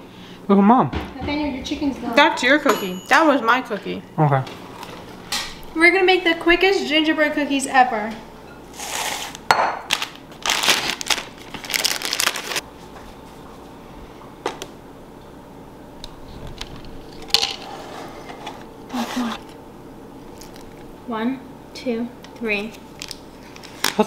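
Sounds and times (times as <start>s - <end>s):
glass clinks: 2.7s - 3.3s
plastic bag crinkling: 9.9s - 12.6s, 22.8s - 24.0s.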